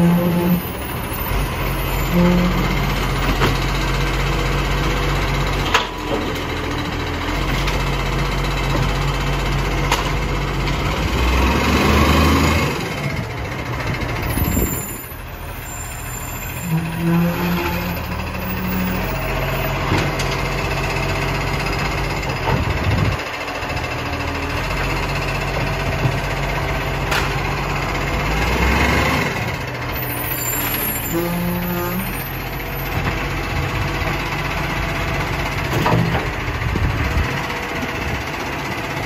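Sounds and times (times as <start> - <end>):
garbage truck diesel engine: 0.0 - 39.0.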